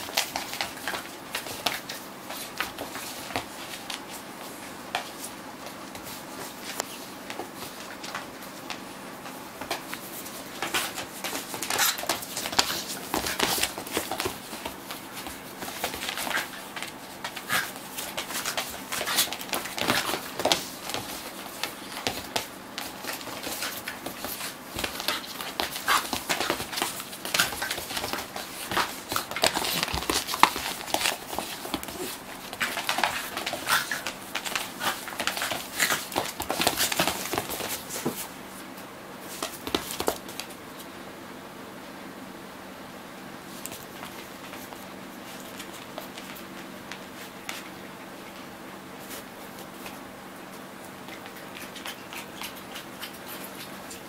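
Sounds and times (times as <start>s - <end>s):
claws scrabbling on wooden floor: 0.0s - 38.4s.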